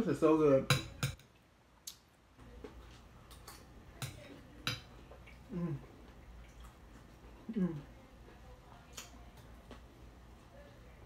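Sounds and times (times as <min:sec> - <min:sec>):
person humming mm: 0:05.5 - 0:05.9.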